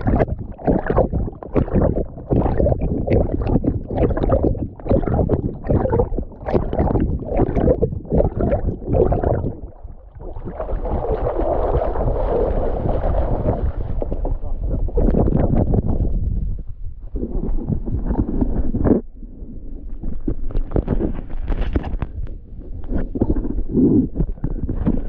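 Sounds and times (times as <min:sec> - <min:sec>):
rush of water: 0:00.0 - 0:16.1
water splashing: 0:00.0 - 0:16.1.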